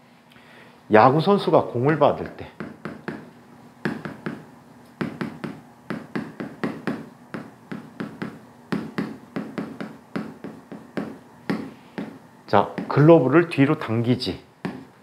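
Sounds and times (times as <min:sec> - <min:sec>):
writing taps on a board: 0:02.6 - 0:04.4, 0:05.0 - 0:13.0, 0:14.6 - 0:14.9.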